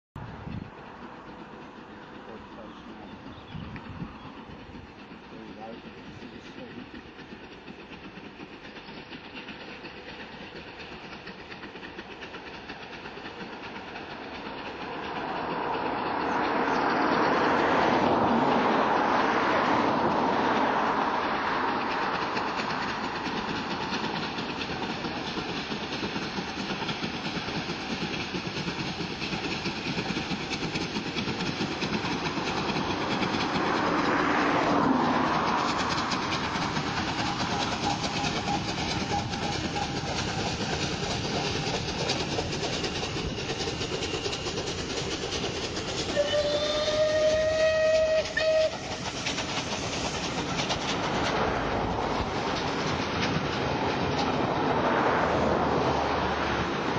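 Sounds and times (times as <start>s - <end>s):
steam locomotive exhaust: 0.2s - 56.9s
train wheels clattering: 0.2s - 56.9s
steam whistle: 46.1s - 49.0s.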